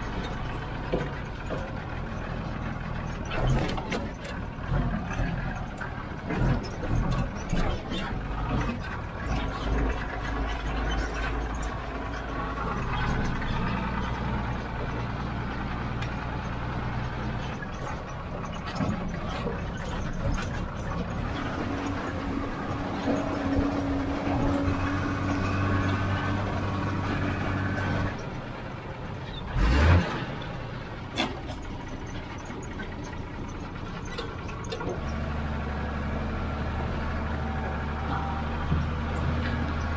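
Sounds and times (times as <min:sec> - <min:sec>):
truck body rattling over bumps: 0:00.0 - 0:39.9
truck engine droning: 0:00.0 - 0:39.9.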